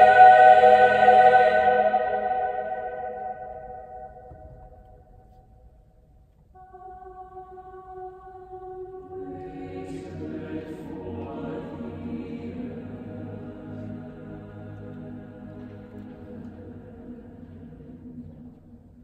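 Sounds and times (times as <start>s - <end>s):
mixed choir singing: 0.0s - 4.3s, 8.9s - 18.5s
orchestra: 0.0s - 4.4s.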